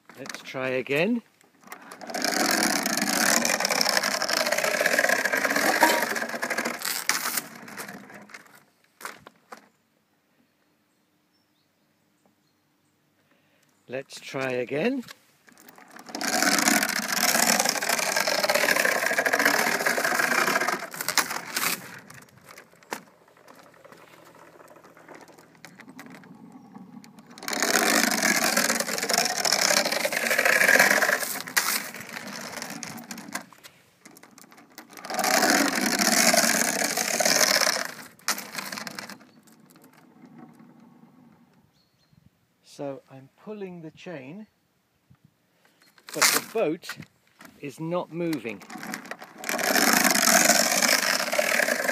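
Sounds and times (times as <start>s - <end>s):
iron chain rattling and scraping: 1.9s - 8.0s, 15.6s - 33.4s, 34.3s - 39.2s, 48.6s - 51.9s.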